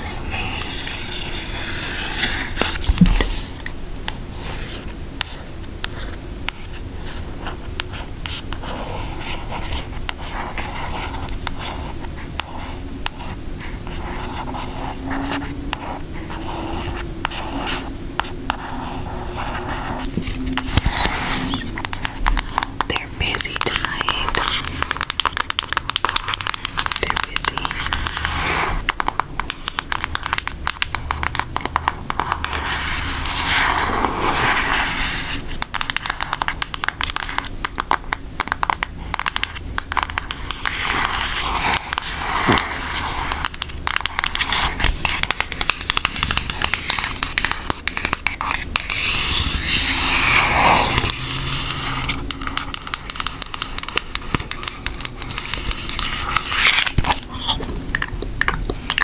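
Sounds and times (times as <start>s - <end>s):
fingernails tapping and scratching: 35.5s - 59.0s.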